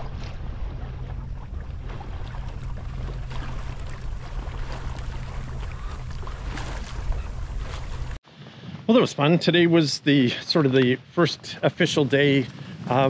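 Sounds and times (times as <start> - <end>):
water splashing along hull: 0.0 - 8.2
wind buffeting microphone: 0.0 - 8.9.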